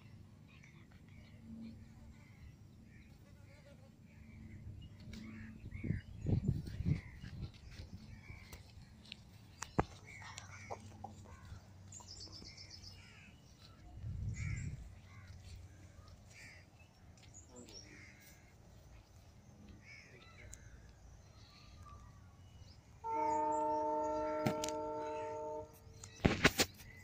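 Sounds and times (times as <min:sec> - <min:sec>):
birds calling: 0:00.0 - 0:27.0
loud steady pitched tone: 0:23.0 - 0:25.9.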